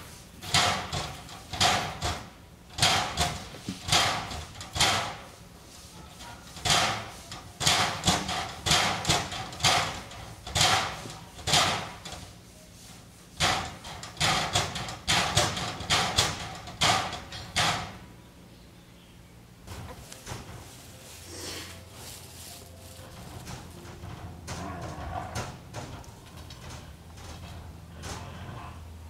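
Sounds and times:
tigers hissing while play-fighting: 21.1 - 22.1.

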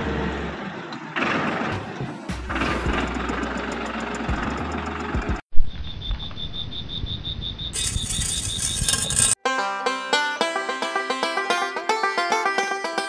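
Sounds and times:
insect chirping trill: 5.6 - 9.4
high hissing chirp: 5.7 - 9.2
small electric motor humming: 7.8 - 9.4.

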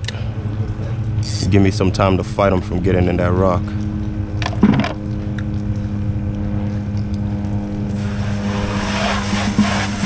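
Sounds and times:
steady motor drone: 0.0 - 10.0
rushing hiss: 8.0 - 10.0.

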